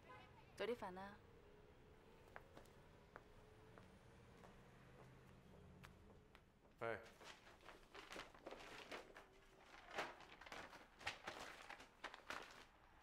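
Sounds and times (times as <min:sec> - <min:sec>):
paper envelope handled: 0:07.1 - 0:13.0.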